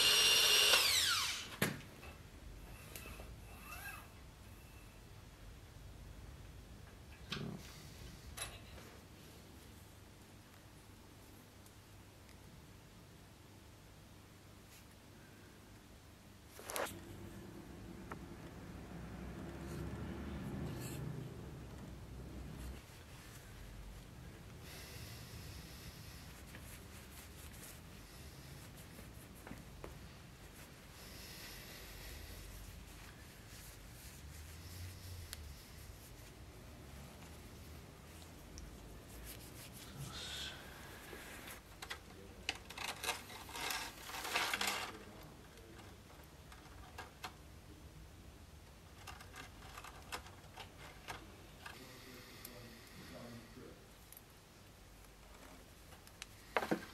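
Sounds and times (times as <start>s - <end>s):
cloth rag rustling: 26.2s - 31.0s
scraping and rustling: 41.0s - 47.3s.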